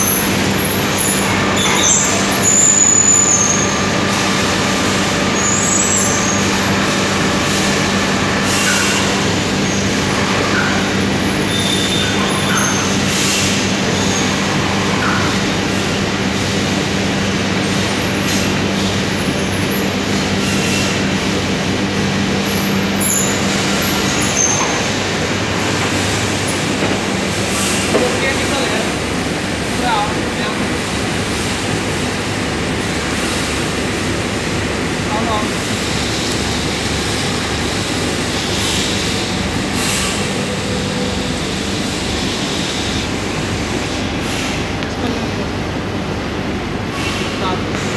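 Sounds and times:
machinery hum: 0.0s - 47.9s.

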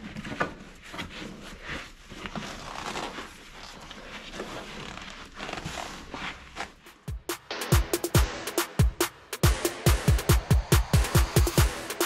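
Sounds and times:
vinyl seat cover rustling: 0.0s - 7.3s.

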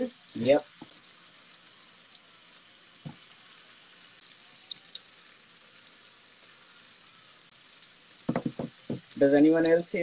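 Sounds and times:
fish sizzling in a skillet: 0.0s - 10.0s
light knock: 8.3s - 9.1s.

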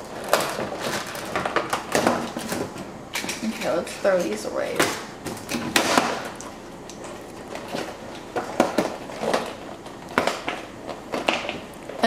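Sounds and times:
knocks and rustles of packaging: 0.0s - 3.8s, 7.1s - 12.0s.

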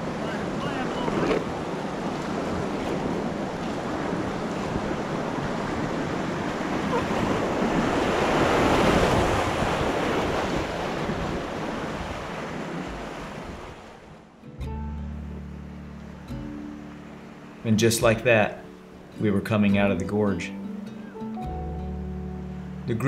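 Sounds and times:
whitewater rushing and churning: 0.0s - 14.4s.

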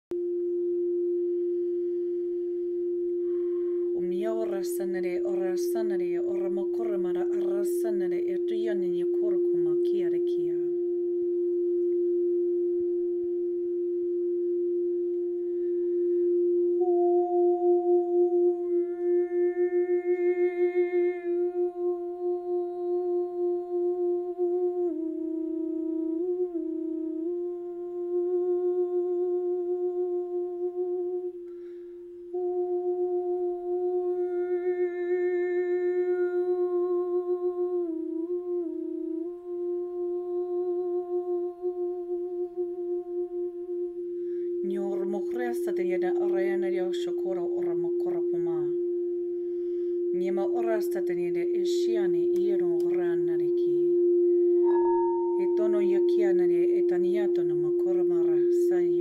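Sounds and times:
singing bowl ringing: 0.3s - 21.1s, 44.0s - 59.0s
woman breathing: 3.2s - 4.0s, 15.4s - 16.4s, 31.5s - 32.2s, 44.1s - 44.6s, 49.4s - 50.1s, 54.2s - 54.7s
woman singing a held note: 3.2s - 10.9s, 16.8s - 25.4s, 26.2s - 49.0s, 50.0s - 59.0s.

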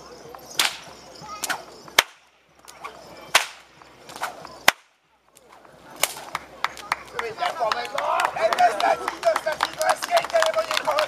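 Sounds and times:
whip cracking: 0.6s - 7.2s.

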